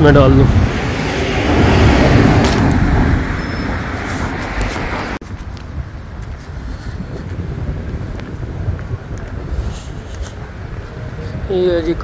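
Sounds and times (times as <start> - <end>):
street traffic hum: 0.0 - 12.0
car passing by: 0.2 - 5.2.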